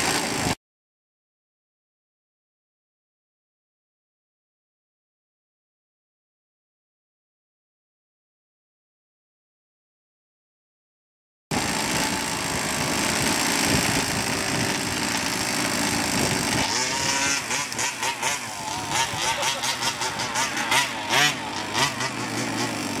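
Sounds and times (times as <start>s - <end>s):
small two-stroke engine revving: 0.0s - 0.6s, 11.5s - 23.0s.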